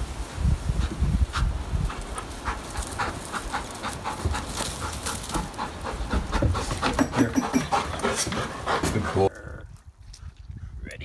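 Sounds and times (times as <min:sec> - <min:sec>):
dog panting: 0:00.8 - 0:09.3.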